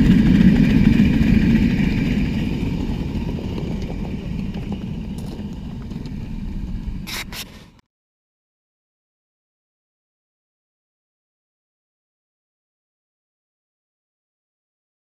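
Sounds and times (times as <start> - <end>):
steam locomotive rumbling: 0.0 - 7.8
wheel clatter: 0.0 - 7.8.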